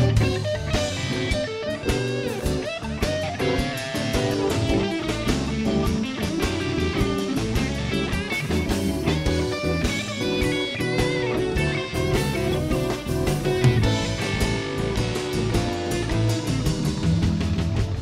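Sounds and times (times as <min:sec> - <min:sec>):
bass: 0:00.0 - 0:18.0
electric guitar lead: 0:00.0 - 0:18.0
steady drum beat: 0:00.0 - 0:18.0.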